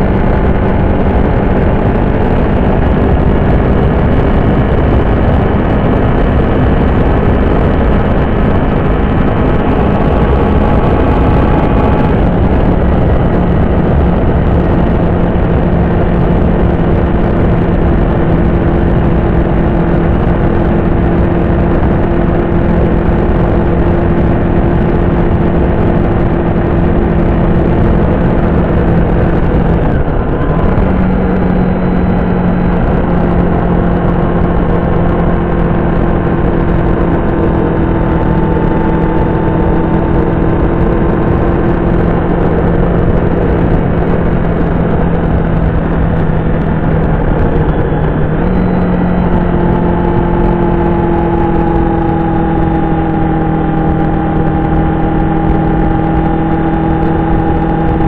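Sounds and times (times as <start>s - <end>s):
motorcycle engine running: 0.0s - 58.0s
wind rush: 0.0s - 58.0s.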